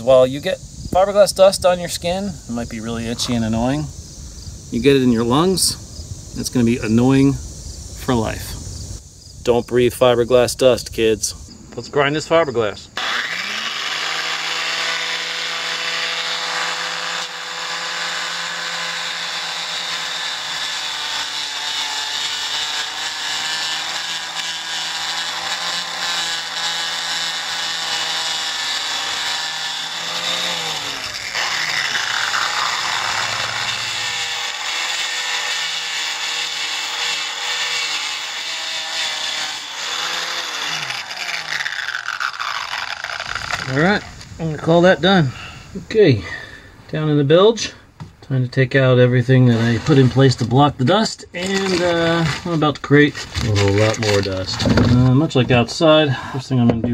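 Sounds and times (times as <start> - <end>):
rotary tool motor whine: 13.0 - 44.2.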